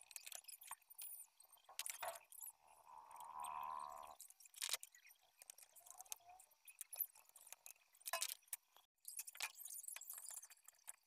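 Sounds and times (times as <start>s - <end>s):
faint plastic clicks and knocks: 4.2s - 11.0s.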